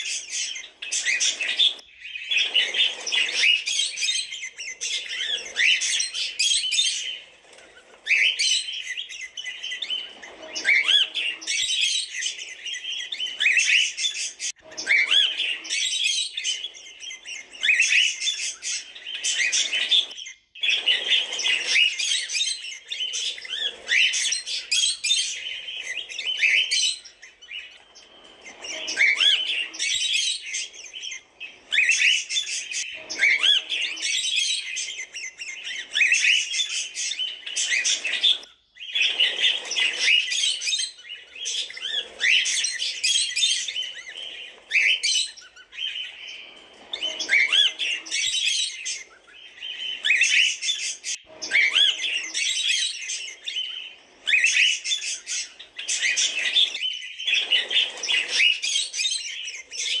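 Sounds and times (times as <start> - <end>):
cockatiels chirping: 0.0 - 60.0.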